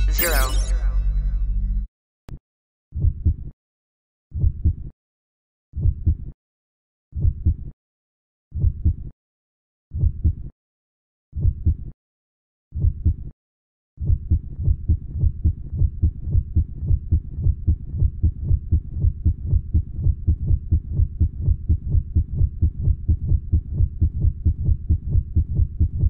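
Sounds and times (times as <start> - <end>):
heartbeat thumps: 4.4 - 4.8, 5.8 - 6.2, 7.2 - 7.6, 8.6 - 9.0, 10.0 - 10.4, 11.4 - 11.8, 12.8 - 13.1, 14.0 - 26.0.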